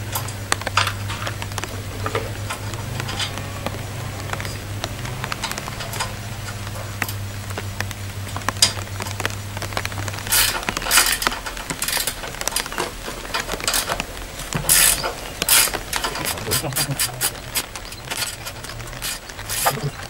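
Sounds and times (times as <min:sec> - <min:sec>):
faint low hum: 0:00.0 - 0:20.0
light rain patter: 0:00.0 - 0:20.0
tools clicking and rustling: 0:10.3 - 0:20.0.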